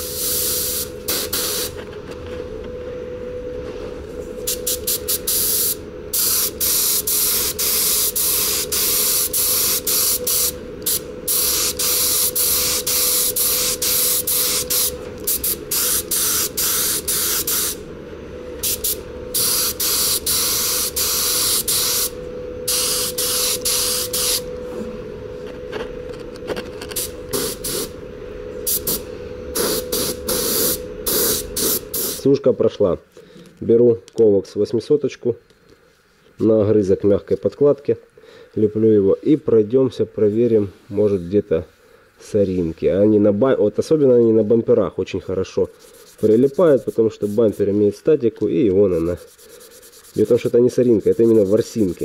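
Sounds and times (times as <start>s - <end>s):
paint spray gun hissing: 0.0s - 1.8s, 4.5s - 17.8s, 18.6s - 22.1s, 22.7s - 24.4s, 27.3s - 27.9s, 29.6s - 32.2s
steady hum: 0.0s - 52.0s.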